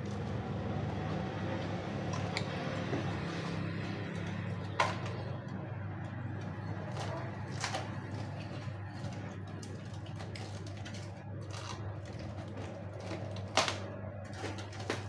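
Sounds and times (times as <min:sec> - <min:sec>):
plastic rustling and clicks: 0:06.9 - 0:15.0.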